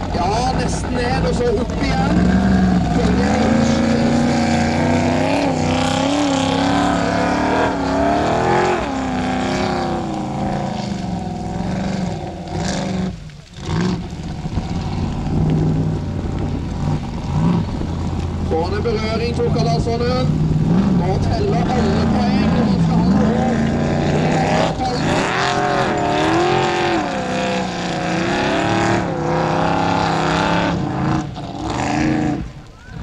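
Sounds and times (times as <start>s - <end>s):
buggy engine revving hard: 0.0s - 33.0s.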